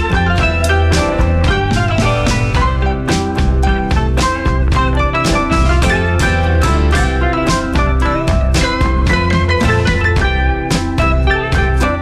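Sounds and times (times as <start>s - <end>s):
drum kit beat: 0.0s - 12.0s
guitar: 0.0s - 12.0s
upbeat instrumental music: 0.0s - 12.0s.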